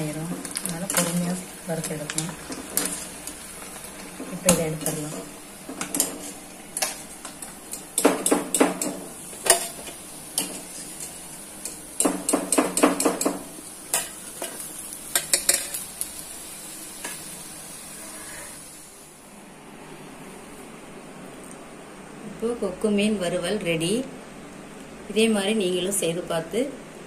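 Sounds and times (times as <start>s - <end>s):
oil sizzling in frying pan: 0.0s - 19.4s.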